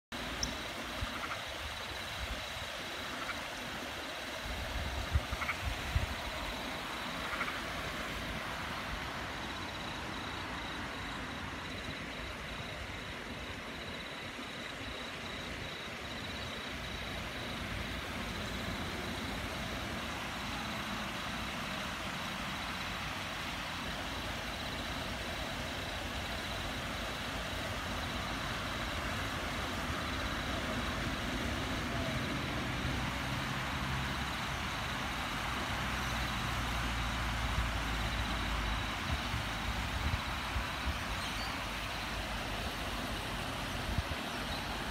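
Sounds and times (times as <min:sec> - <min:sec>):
water rushing over weir: 0:16.7 - 0:44.9.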